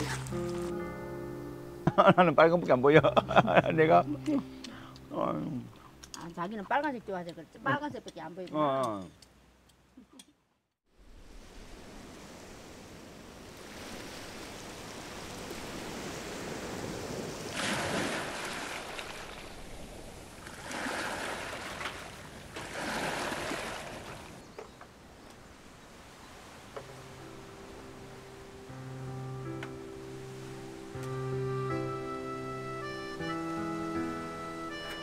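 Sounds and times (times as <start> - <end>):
surges of foaming water: 11.2 - 24.4
waves washing over pebbles: 11.2 - 24.4.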